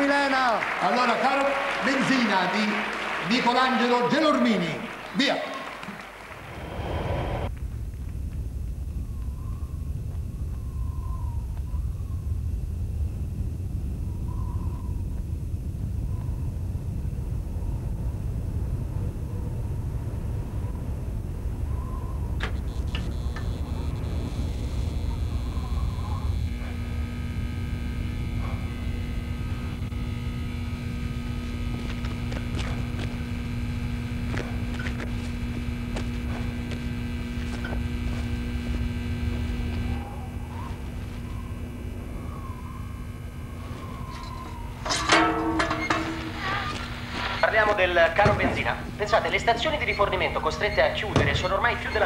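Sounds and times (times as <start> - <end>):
electrical hum: 0.0 - 52.0
steady low rumble: 6.2 - 52.0
faint high wavering tone: 36.9 - 47.6.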